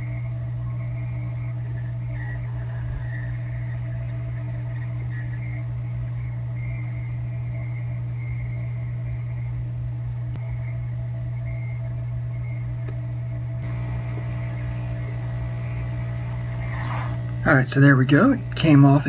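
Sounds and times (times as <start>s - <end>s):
hot air station humming: 0.0s - 19.0s
air rushing from nozzle: 16.4s - 17.3s.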